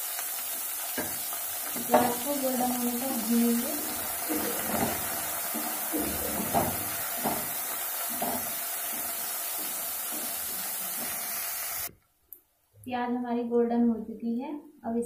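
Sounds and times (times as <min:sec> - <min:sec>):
onions sizzling in hot fat: 0:00.0 - 0:11.9
wooden spatula scraping: 0:01.7 - 0:11.8.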